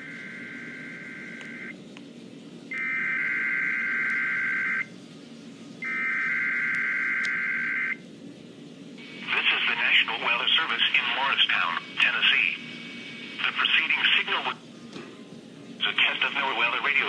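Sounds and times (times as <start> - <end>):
buzzy data tone bursts: 9.0 - 14.3.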